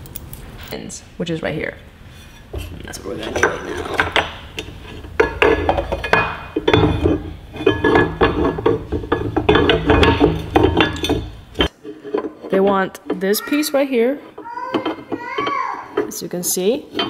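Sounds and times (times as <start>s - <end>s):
metal bracket and bolts clinking: 2.6s - 13.5s.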